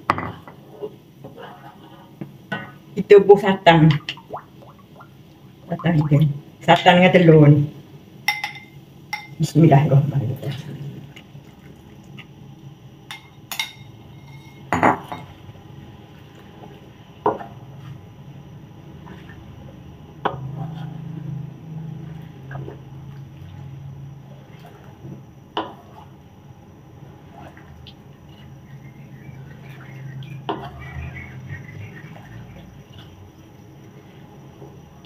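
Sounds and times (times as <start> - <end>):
spatula stirring and scraping: 0.3 - 2.8, 16.2 - 34.9.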